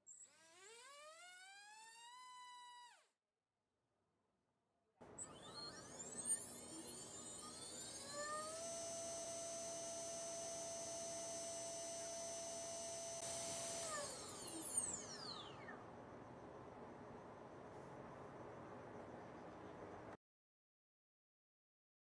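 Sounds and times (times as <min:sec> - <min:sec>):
electric motor whine: 0:00.2 - 0:03.1, 0:05.1 - 0:15.8.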